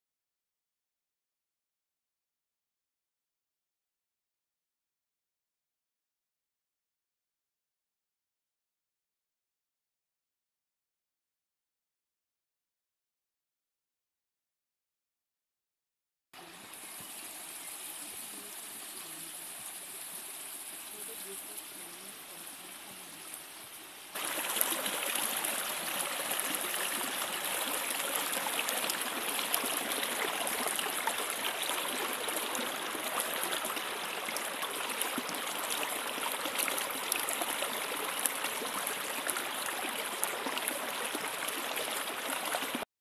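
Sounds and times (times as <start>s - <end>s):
stream rushing over rocks: 16.4s - 42.8s.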